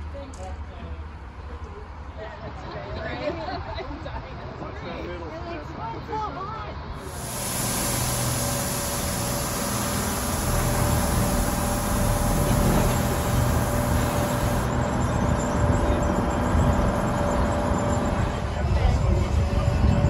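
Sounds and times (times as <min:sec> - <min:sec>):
locomotive engine drone: 0:07.0 - 0:18.6.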